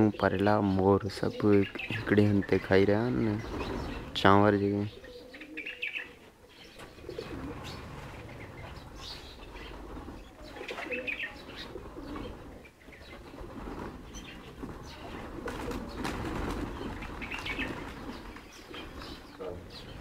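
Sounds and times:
pigeons cooing: 0.0s - 20.0s
pigeons flapping wings: 3.3s - 4.2s, 6.8s - 20.0s.

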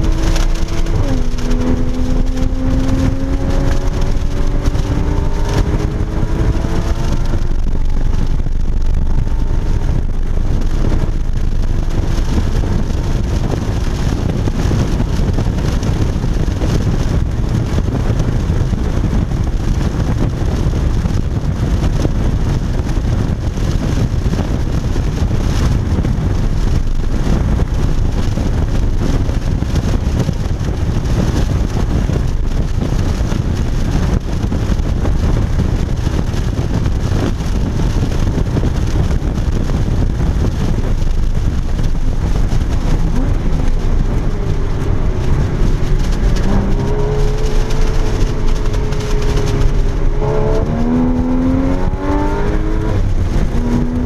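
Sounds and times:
car engine at speed: 0.0s - 54.0s
road noise: 0.0s - 54.0s
wind noise: 0.0s - 54.0s.

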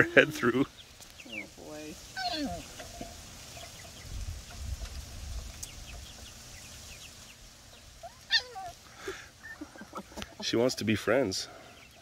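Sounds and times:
chicks peeping faintly: 0.0s - 12.0s
puppy whining: 2.2s - 2.7s, 8.0s - 8.8s.

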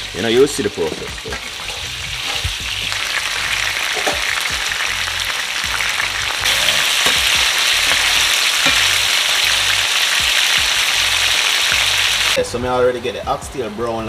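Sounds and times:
meat sizzling in a pot: 0.0s - 12.4s.

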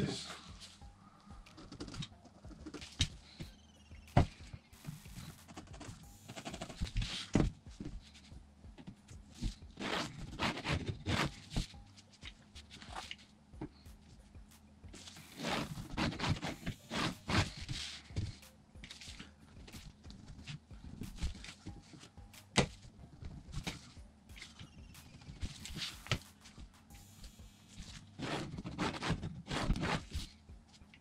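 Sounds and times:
pencil scratching along metal ruler: 15.3s - 17.6s.

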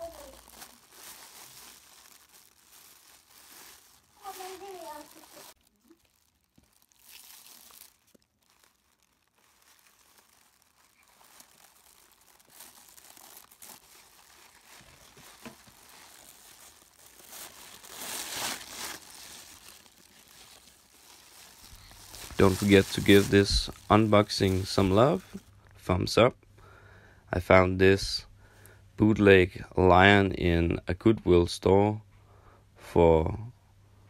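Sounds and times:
tissue paper rustling: 0.0s - 25.5s.

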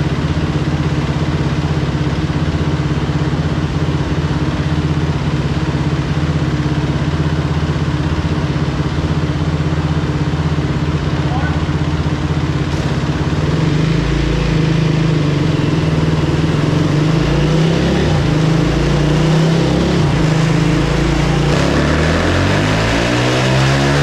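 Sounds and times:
dirt bike engine revving: 11.3s - 24.0s.

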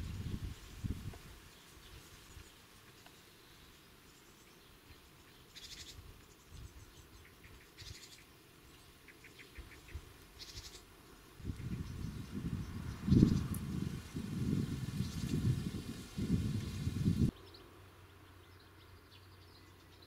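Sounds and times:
wind buffeting microphone: 0.0s - 1.3s, 11.4s - 17.3s
buzzy chirring animal calls: 9.1s - 10.8s.

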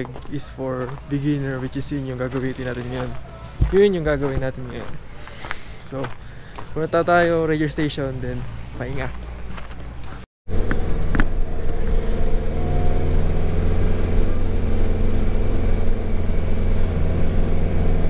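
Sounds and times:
engine and road drone: 3.6s - 18.0s.

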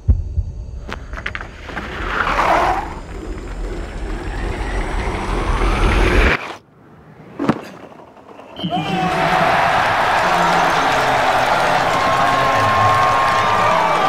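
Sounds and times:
skis rumbling down a track: 0.9s - 6.4s.

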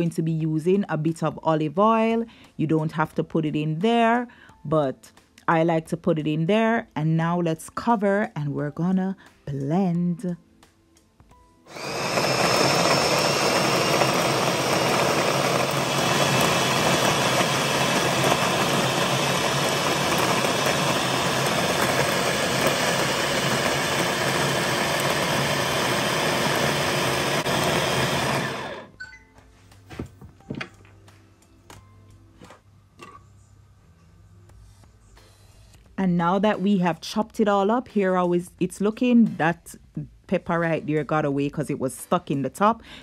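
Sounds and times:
food chopper motor running: 11.7s - 28.9s.

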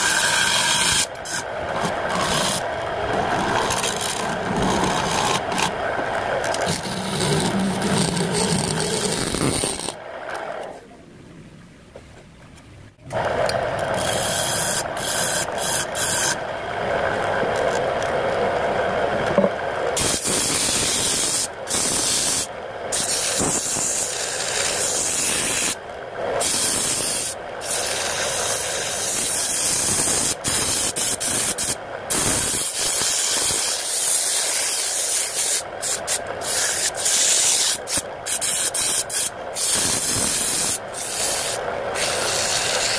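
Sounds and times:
sandpaper hissing on spinning wood: 0.0s - 2.6s, 6.6s - 10.0s, 20.0s - 25.8s, 26.4s - 42.9s
gouge cutting wood on lathe: 0.0s - 10.0s, 13.2s - 16.5s, 20.0s - 25.8s, 26.4s - 42.9s.

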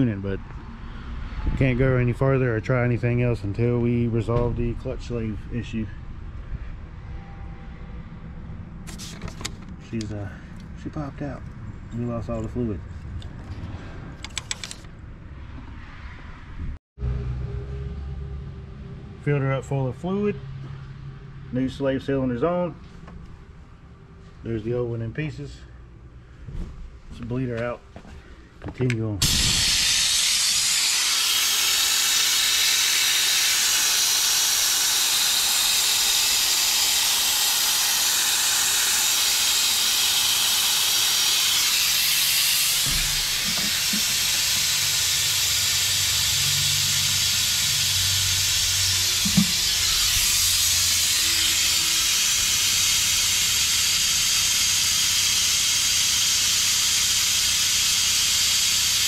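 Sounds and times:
air-powered brake bleeder hissing: 8.9s - 9.4s, 29.2s - 59.0s.

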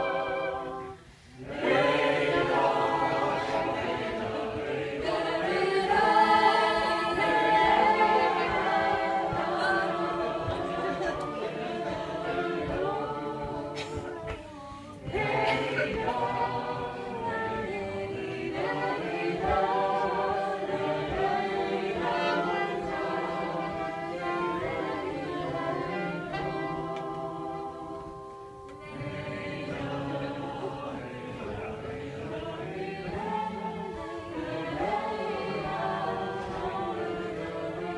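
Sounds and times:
soprano saxophone sustained notes: 0.0s - 1.1s
other sustained tones: 0.0s - 13.8s.

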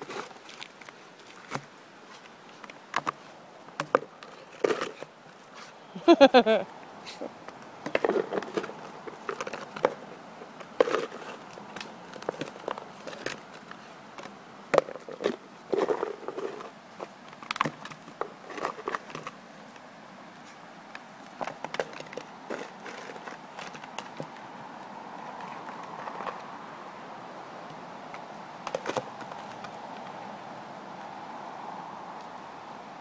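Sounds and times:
bowl scraping on gravel: 7.9s - 13.9s, 14.9s - 17.1s, 21.5s - 24.2s.

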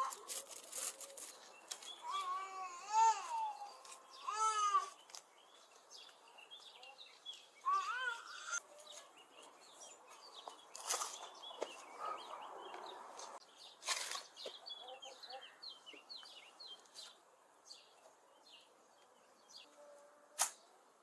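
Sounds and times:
small birds chirping: 0.0s - 21.0s
spade digging stony soil: 13.8s - 14.4s.

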